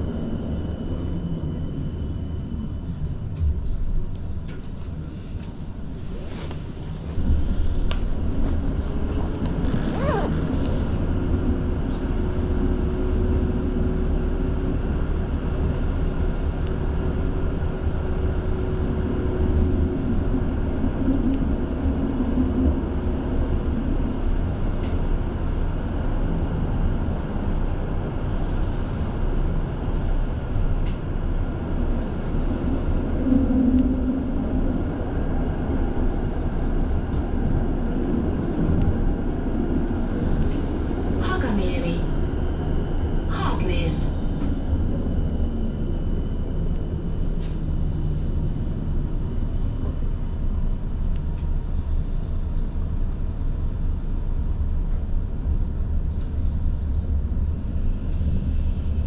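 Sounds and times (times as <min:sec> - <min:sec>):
tram rumbling: 0:00.0 - 0:59.0
tram whine: 0:00.0 - 0:59.0
tram squealing: 0:09.1 - 0:10.6.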